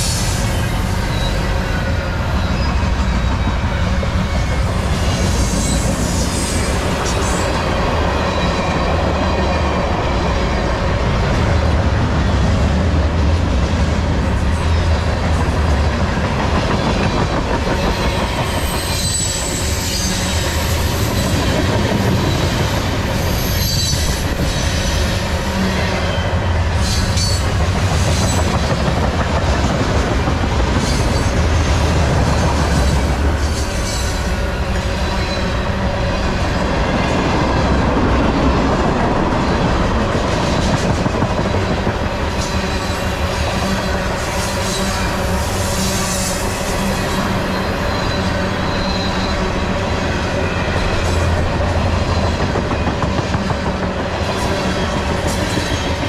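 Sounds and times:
train wheels rumbling on rails: 0:00.0 - 0:56.0
high-pitched wheel squeal: 0:18.0 - 0:21.4, 0:45.7 - 0:49.6.

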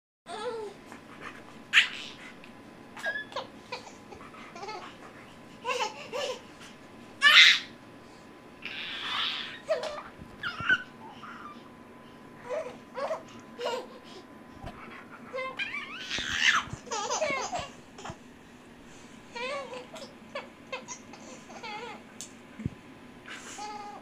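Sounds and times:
baby squealing: 0:07.2 - 0:07.7, 0:08.6 - 0:11.6, 0:15.4 - 0:17.7
babies babbling and laughing: 0:14.8 - 0:18.2.

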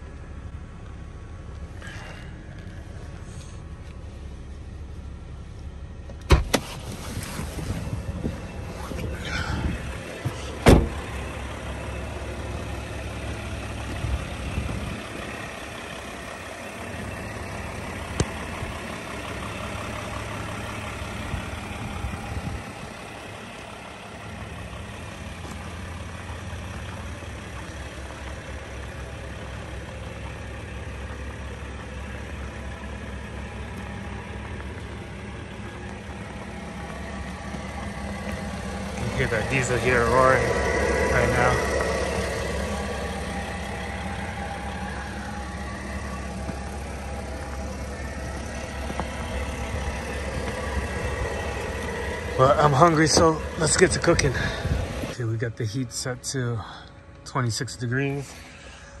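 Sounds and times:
diesel heater drone: 0:00.0 - 0:59.0.

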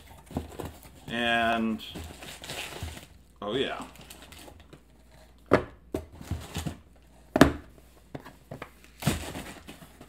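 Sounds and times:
cardboard boxes knocking on table: 0:05.5 - 0:10.0.

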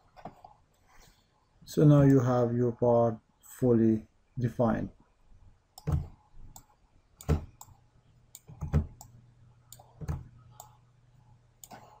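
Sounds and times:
faint low hum: 0:00.0 - 0:12.0
computer mouse clicking: 0:05.8 - 0:10.8.

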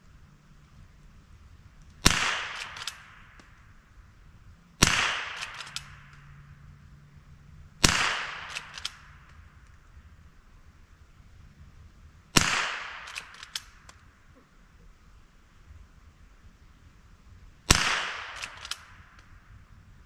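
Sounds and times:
small clicks: 0:01.8 - 0:03.7, 0:05.3 - 0:06.3, 0:08.4 - 0:09.9, 0:13.0 - 0:14.1, 0:18.3 - 0:19.4
rifle shots with echo: 0:02.0 - 0:03.7, 0:04.8 - 0:06.4, 0:07.8 - 0:09.5, 0:12.3 - 0:14.1, 0:17.7 - 0:19.2.

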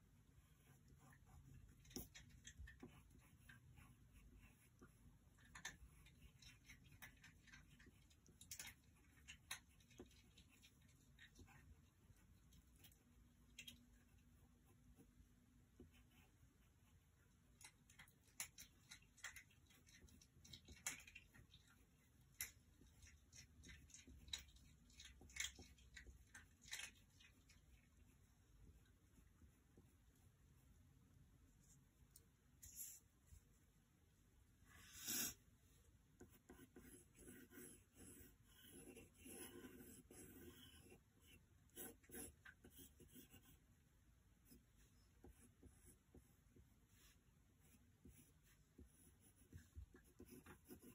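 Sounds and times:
pencil scratching on paper: 0:00.4 - 0:02.1, 0:02.7 - 0:07.0, 0:14.0 - 0:17.0, 0:36.2 - 0:43.7, 0:44.4 - 0:50.9.

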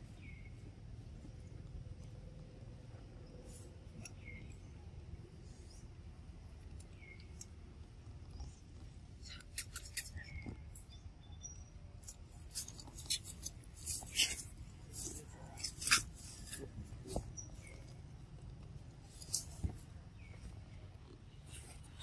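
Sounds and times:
clicks and crackles on dry leaves: 0:12.0 - 0:18.0.

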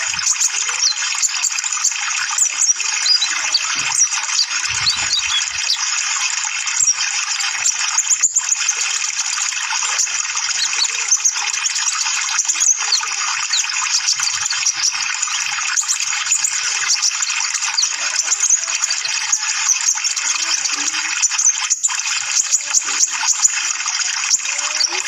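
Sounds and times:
bird twittering chirps: 0:00.0 - 0:25.0.

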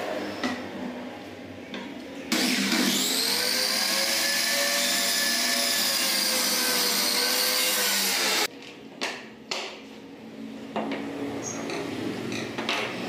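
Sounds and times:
mitre saw cutting wood: 0:02.3 - 0:08.5.

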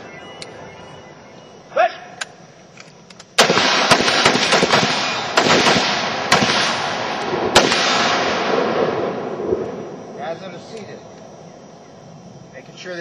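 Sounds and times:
rifles firing rapidly: 0:03.4 - 0:08.5.

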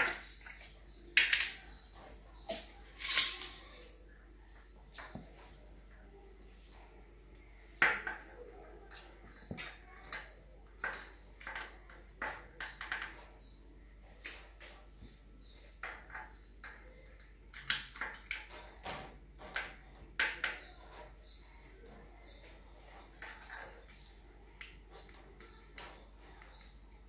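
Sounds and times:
utensils clinking against dishes: 0:00.0 - 0:04.0.

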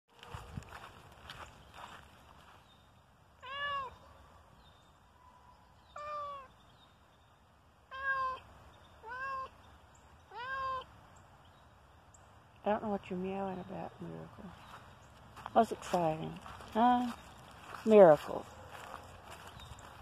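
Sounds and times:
cat meowing: 0:03.4 - 0:04.0, 0:06.0 - 0:06.5, 0:07.9 - 0:08.4, 0:09.0 - 0:09.5, 0:10.3 - 0:10.9.

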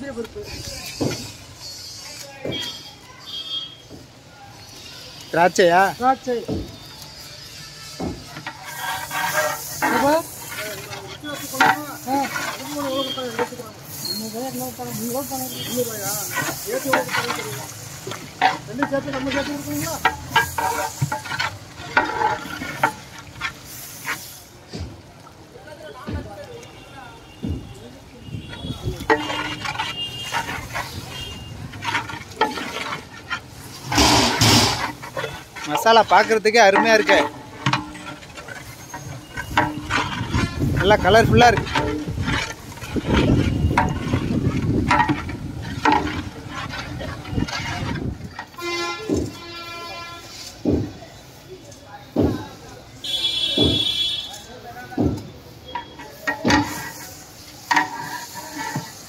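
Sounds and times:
oil sizzling: 0:00.0 - 0:25.8, 0:28.0 - 0:51.5, 0:55.4 - 0:59.0
ladle scraping metal pot: 0:00.2 - 0:03.7, 0:04.6 - 0:24.6, 0:28.2 - 0:51.4, 0:55.4 - 0:59.0
ladle stirring thick gravy: 0:00.2 - 0:25.5, 0:27.2 - 0:51.4, 0:55.3 - 0:59.0
ladle clanking against pot: 0:29.0 - 0:49.5, 0:55.0 - 0:59.0.

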